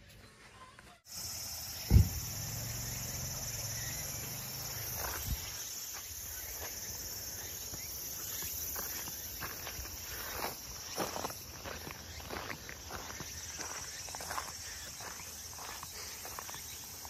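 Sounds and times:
insects buzzing: 1.1s - 17.0s
loud thump: 1.8s - 2.4s.

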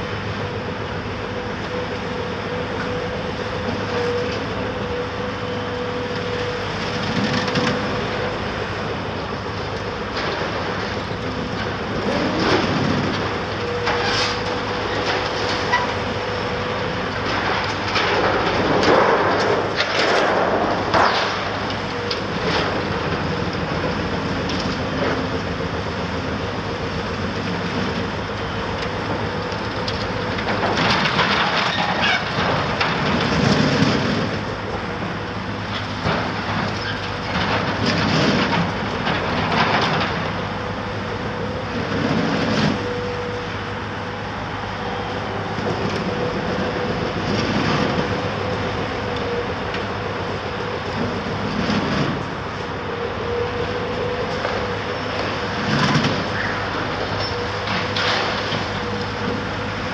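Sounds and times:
excavator diesel engine humming: 0.0s - 59.9s
building rubble crashing and scraping: 17.2s - 25.3s, 30.3s - 35.2s, 35.8s - 40.7s.

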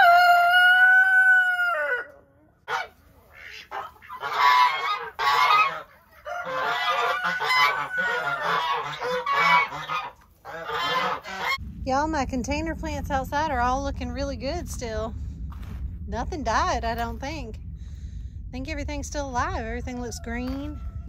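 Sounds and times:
rooster crowing: 0.0s - 2.1s, 6.2s - 9.2s.

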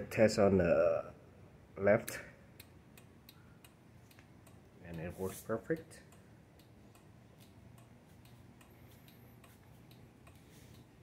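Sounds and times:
turn-signal relay ticking: 2.4s - 11.0s.

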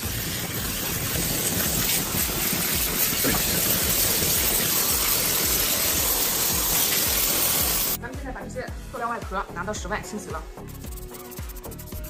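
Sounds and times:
steam cleaner hissing: 0.0s - 8.0s.

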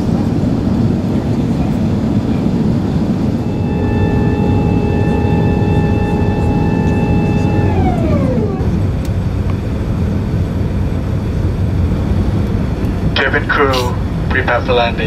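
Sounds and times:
airplane cabin roar: 0.0s - 15.0s
tone sliding down in pitch: 3.4s - 9.2s.

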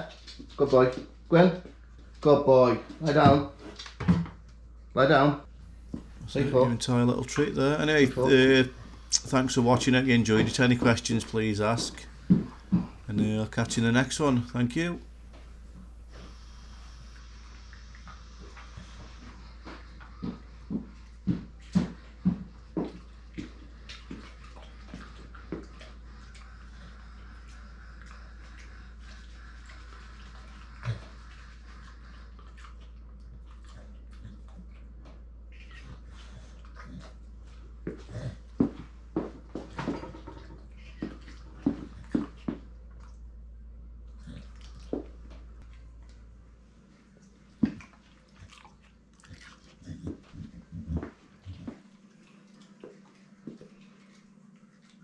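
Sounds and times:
dog licking and chewing: 5.6s - 43.3s, 44.1s - 55.0s
dog chewing a treat: 46.9s - 55.0s.

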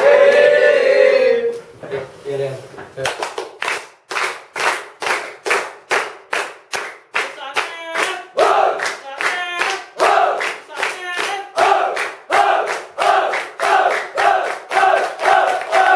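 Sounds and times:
people clapping in unison: 0.0s - 0.6s, 3.0s - 15.9s
people chanting together: 0.0s - 1.7s, 8.1s - 15.9s.

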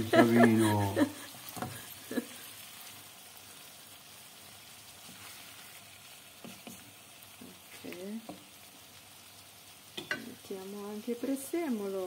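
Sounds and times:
food sizzling in a wok: 0.0s - 12.0s
chopsticks stirring: 4.7s - 8.5s.

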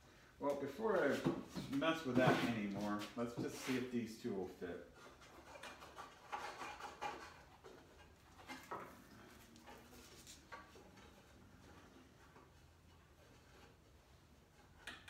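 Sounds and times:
wooden pieces knocking and rubbing: 4.9s - 15.0s.

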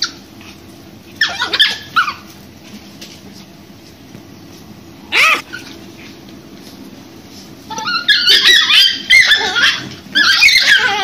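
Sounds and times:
dogs yelping and whining: 0.0s - 2.4s, 5.0s - 6.2s, 7.7s - 11.0s.

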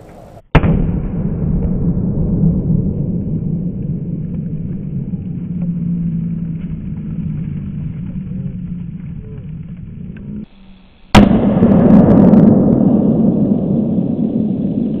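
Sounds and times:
explosion rumbling: 0.0s - 15.0s
sharp loud bang: 0.5s - 4.3s, 11.1s - 15.0s.

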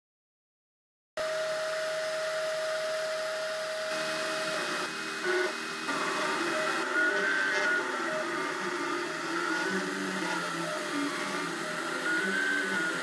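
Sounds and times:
printer fan hiss with tone: 1.2s - 13.0s
printer motor whines: 1.2s - 13.0s.

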